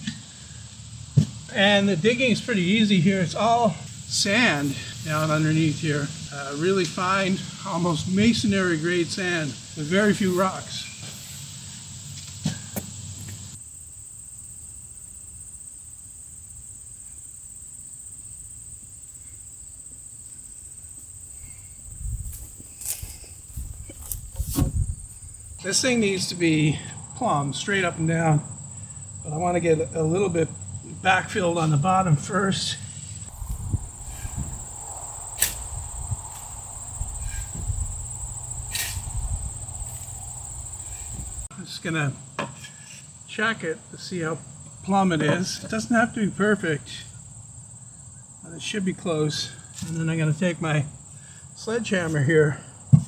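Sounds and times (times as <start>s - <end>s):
crickets chirring: 0.0s - 53.0s
shovel scooping sand: 4.5s - 5.6s, 38.6s - 39.2s
footsteps on grass: 4.6s - 5.8s, 20.9s - 25.6s, 33.2s - 41.5s
shovel scraping: 35.4s - 35.7s, 38.6s - 39.2s.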